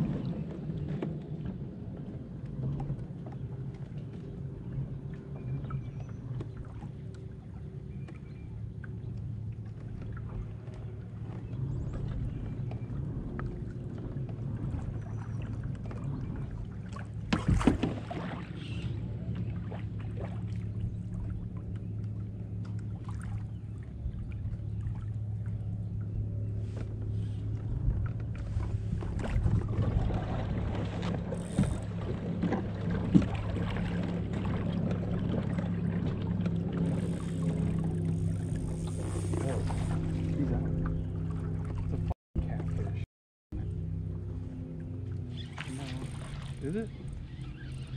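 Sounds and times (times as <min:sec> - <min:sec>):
kayak pedal drive humming: 0:00.0 - 0:47.9
water wash: 0:44.8 - 0:47.9.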